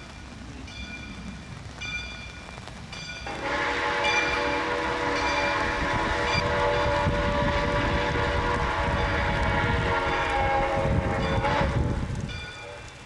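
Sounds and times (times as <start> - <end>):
steam locomotive whistle: 3.3 - 12.9.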